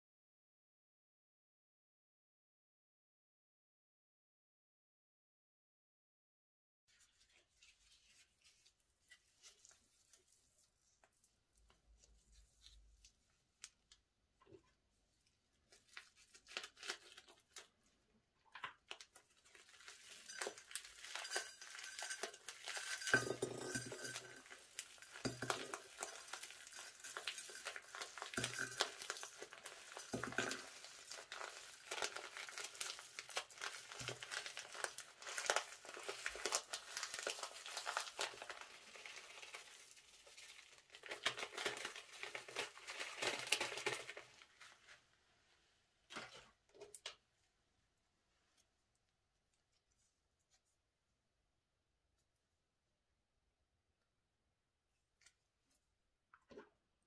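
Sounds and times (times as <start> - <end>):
plastic bag crinkling: 18.9 - 44.8
sequins pattering into glass dish: 19.9 - 35.7.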